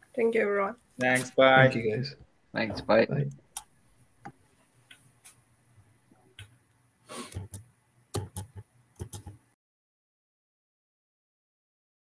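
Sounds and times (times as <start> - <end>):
faint clicks and knocks: 6.1 - 9.5.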